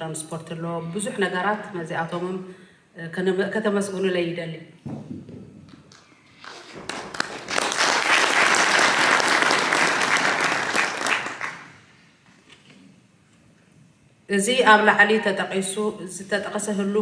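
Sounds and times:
audience applauding: 5.9s - 11.8s.

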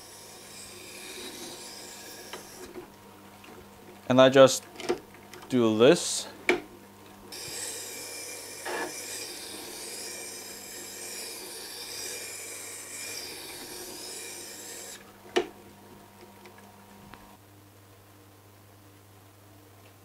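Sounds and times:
grinding wheel scraping hiss: 0.0s - 2.8s, 7.3s - 15.0s.

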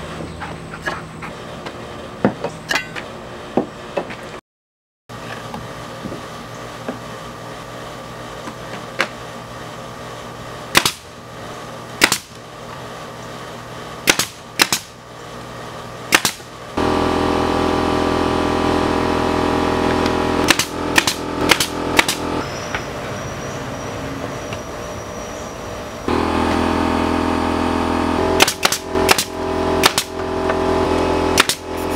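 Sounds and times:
steady motor hum: 5.1s - 31.9s
pneumatic nailer firing: 10.7s - 11.1s, 12.0s - 12.4s, 14.0s - 15.0s, 16.1s - 22.8s, 26.1s - 31.9s.

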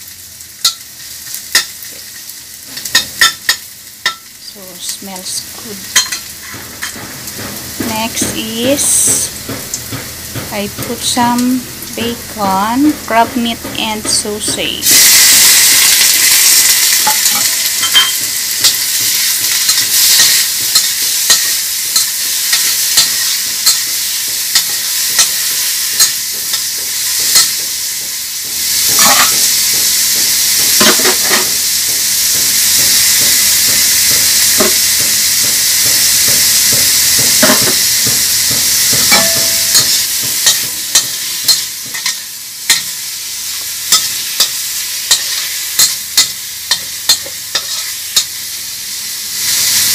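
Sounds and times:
food sizzling in hot oil: 0.0s - 49.9s
utensil knocking and scraping pan: 6.0s - 15.0s, 26.0s - 29.4s, 32.3s - 42.8s.

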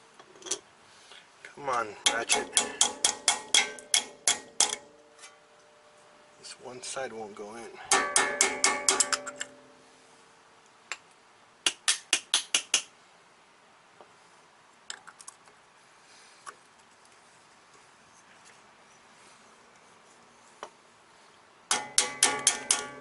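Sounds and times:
metal tool striking steel cap: 2.0s - 5.3s, 7.9s - 9.7s, 21.7s - 23.0s.

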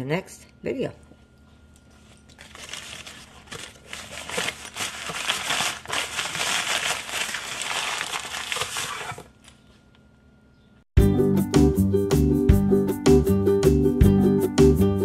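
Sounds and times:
paper crinkling and rustling: 2.0s - 9.6s.

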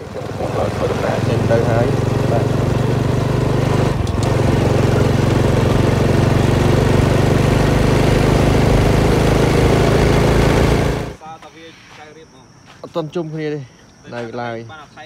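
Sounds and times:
motorbike engine running: 0.0s - 11.2s.

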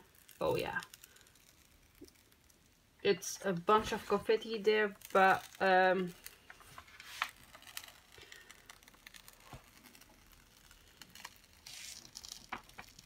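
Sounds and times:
paper rustling: 6.4s - 13.0s.

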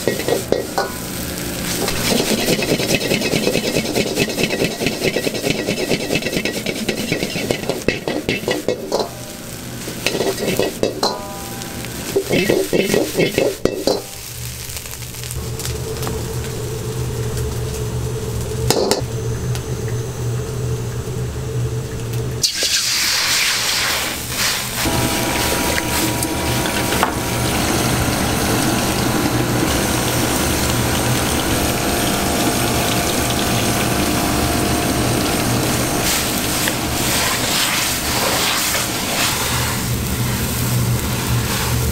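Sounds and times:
water bubbling in wok: 0.0s - 14.1s, 22.4s - 40.4s
water hissing on hot wok: 0.0s - 19.0s, 22.4s - 41.9s
gas burner humming: 0.0s - 41.9s.

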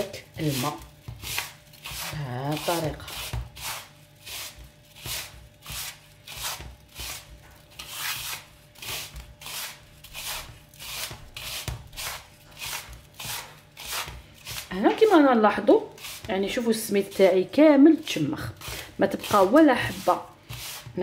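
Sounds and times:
hands rubbing grainy mixture: 18.0s - 21.0s.

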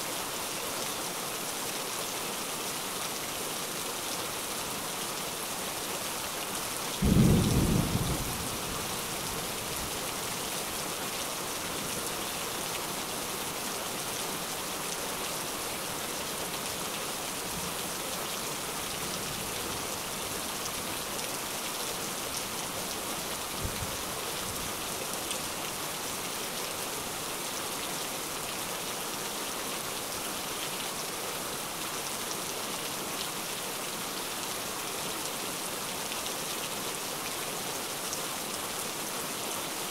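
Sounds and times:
steady rain: 0.0s - 39.9s
faint thunder rumbles: 7.0s - 9.8s.

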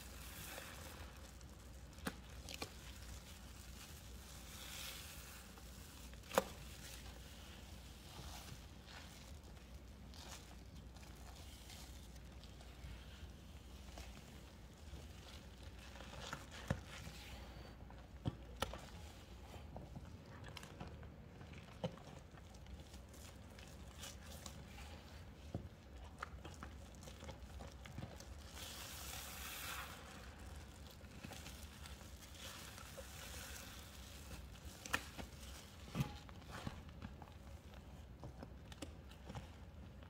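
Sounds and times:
wet paste squishing: 0.0s - 40.0s.

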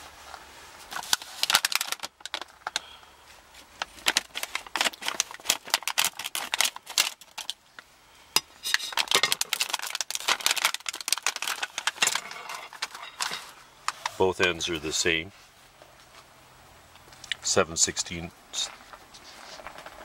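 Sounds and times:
plastic bag crinkling: 0.8s - 2.9s, 3.5s - 7.8s, 8.7s - 14.2s.

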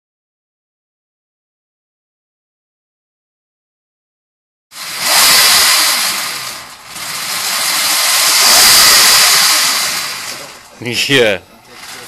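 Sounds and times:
electric motor whirring: 4.8s - 10.7s.

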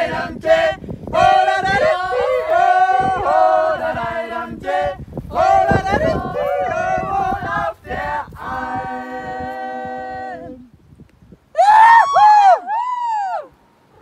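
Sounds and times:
group singing yodel chord: 0.0s - 10.7s.

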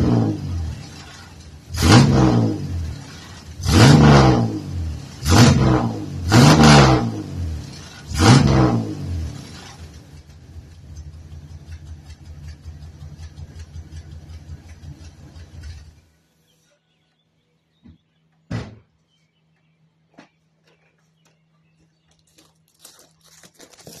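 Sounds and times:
truck engine idling: 10.0s - 16.1s
loud thump: 17.8s - 18.9s.

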